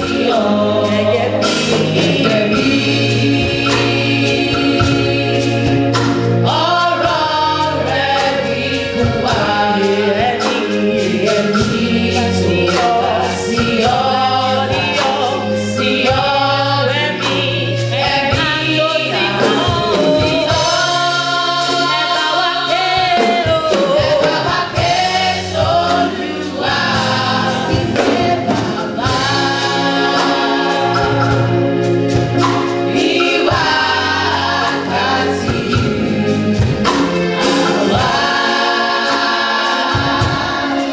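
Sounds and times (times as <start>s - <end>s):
choir of women singing gospel: 0.0s - 40.9s.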